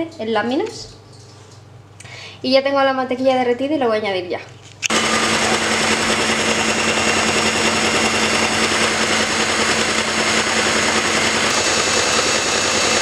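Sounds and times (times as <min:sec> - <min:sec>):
electric hand mixer running: 0:04.9 - 0:13.0.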